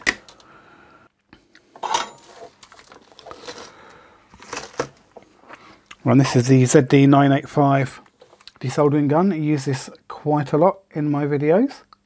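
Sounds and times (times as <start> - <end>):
tools being handled: 1.8 - 3.7.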